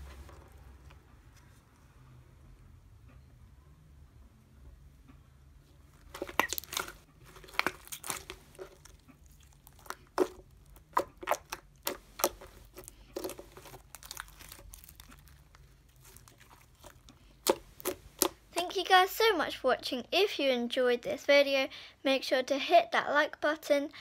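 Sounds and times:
slime squished by hand: 0:06.0 - 0:18.7.

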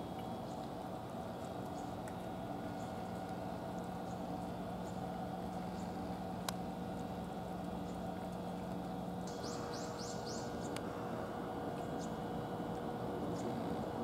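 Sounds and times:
cats eating smacking and licking: 0:00.0 - 0:10.0, 0:10.6 - 0:14.0
bird chirping: 0:09.3 - 0:10.8.

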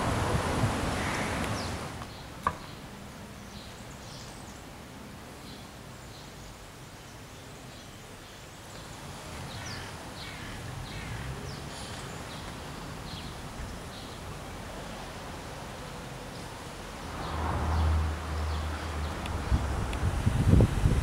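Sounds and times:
outdoor background noise: 0:00.0 - 0:21.0
small birds chirping: 0:05.4 - 0:15.1.

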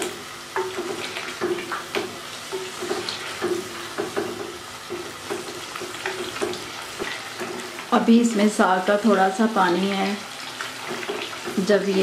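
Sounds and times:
curry sizzling in oil: 0:00.0 - 0:12.0.

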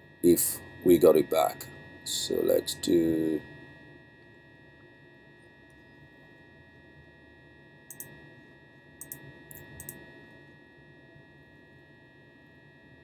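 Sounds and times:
faint electrical whine: 0:00.0 - 0:13.0
computer mouse clicks: 0:07.9 - 0:08.2, 0:09.0 - 0:10.0.

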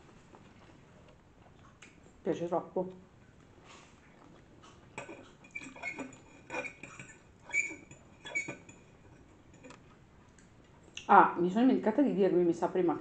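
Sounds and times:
chewing: 0:00.3 - 0:02.1, 0:03.2 - 0:11.1
fork scraping ceramic plate: 0:05.0 - 0:09.8.

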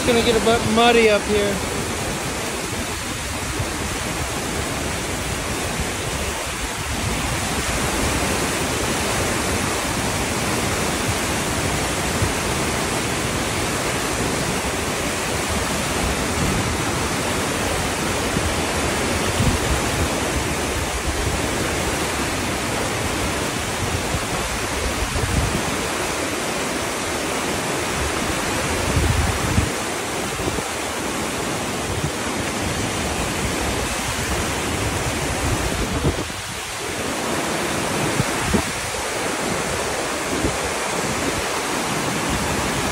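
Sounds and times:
creek water rushing over rocks: 0:00.0 - 0:42.9.

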